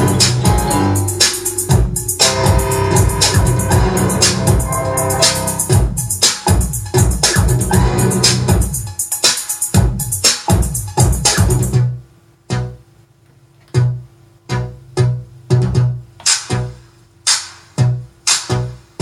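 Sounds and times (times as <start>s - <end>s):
spaced bass hits: 0.0s - 8.8s
dj mix with busy beat: 0.0s - 12.7s, 15.0s - 19.0s.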